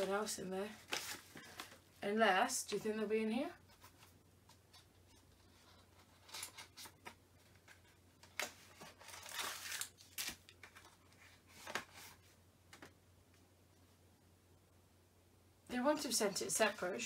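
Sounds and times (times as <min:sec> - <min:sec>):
packaging tearing crinkle: 0:08.3 - 0:10.7.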